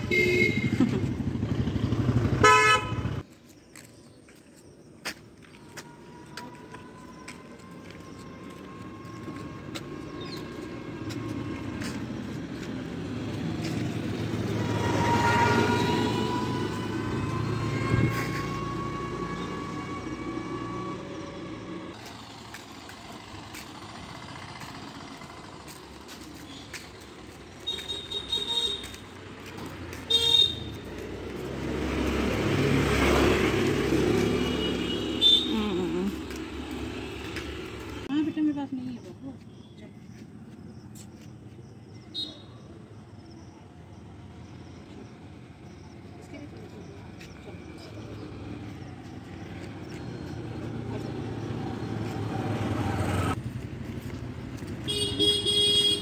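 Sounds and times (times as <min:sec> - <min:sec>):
vehicle horn short beeps: 0:00.0 - 0:00.8, 0:02.4 - 0:03.1, 0:27.7 - 0:29.0, 0:54.9 - 0:56.0
motor vehicle passing: 0:07.7 - 0:38.6, 0:44.0 - 0:56.0.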